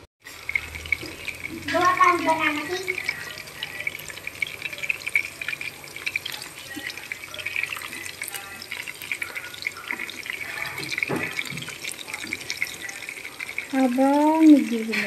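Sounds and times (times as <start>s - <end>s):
fish sizzling in hot oil: 0.2s - 15.0s.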